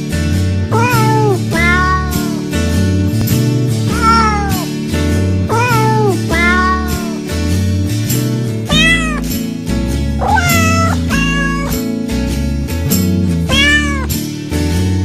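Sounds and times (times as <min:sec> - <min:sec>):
instrumental background music: 0:00.0 - 0:15.0
cat meowing: 0:00.7 - 0:02.4, 0:03.9 - 0:04.7, 0:05.5 - 0:07.2, 0:08.7 - 0:09.3, 0:10.2 - 0:11.8, 0:13.5 - 0:14.1.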